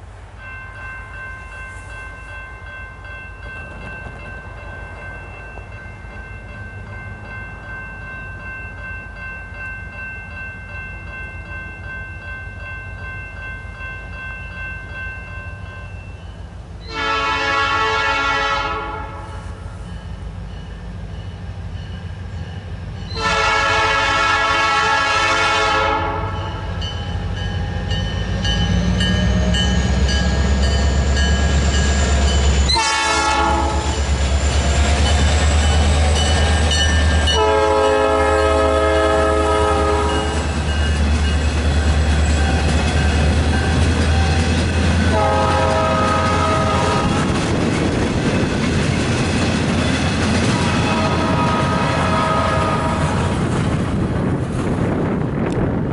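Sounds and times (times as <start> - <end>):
locomotive engine and rail rumble: 0.0 - 55.9
train horn blasts: 16.8 - 19.8, 23.1 - 26.7, 32.6 - 34.1, 37.2 - 40.5, 45.0 - 47.4, 50.6 - 53.3.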